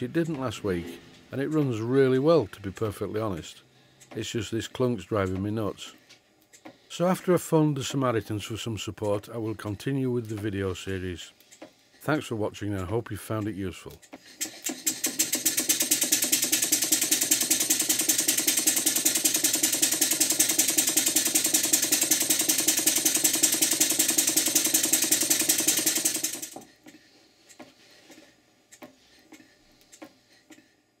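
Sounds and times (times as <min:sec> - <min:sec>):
model steam engine exhaust hissing: 0:13.7 - 0:27.2
mechanical clatter: 0:14.1 - 0:27.0.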